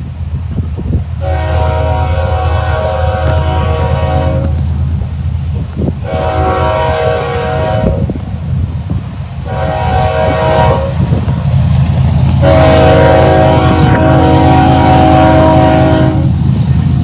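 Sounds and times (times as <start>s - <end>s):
train rumble: 0.0s - 17.0s
locomotive air horn blasts: 1.2s - 4.8s, 6.0s - 8.2s, 9.4s - 11.2s, 12.4s - 16.4s.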